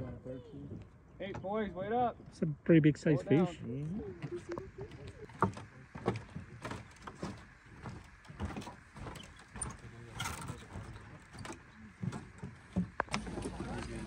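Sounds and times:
faint outdoor background: 0.0 - 14.0
footsteps on wooden boardwalk: 3.9 - 14.0.

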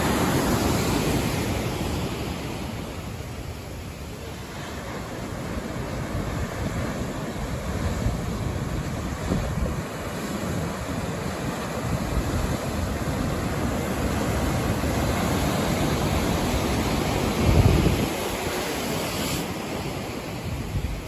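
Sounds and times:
ocean waves breaking: 0.0 - 21.0
wind on microphone: 4.8 - 21.0.

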